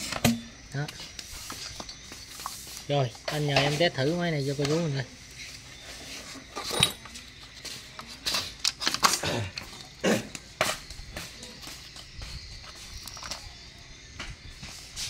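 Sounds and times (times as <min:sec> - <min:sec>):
knocks and clatters of handling: 0:05.5 - 0:13.6.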